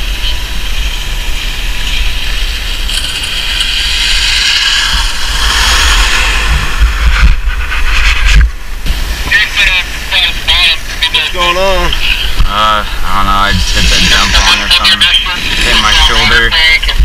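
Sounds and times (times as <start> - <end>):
wind rumbling on microphone: 0.0 - 17.0
skis sliding on snow: 0.9 - 8.5, 12.5 - 16.8
low thumps: 4.9 - 9.3.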